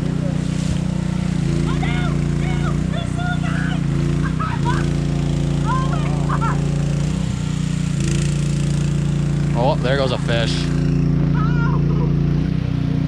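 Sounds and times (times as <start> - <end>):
faint voices: 0.0 - 7.0, 9.5 - 12.2
petrol generator running: 0.0 - 13.0.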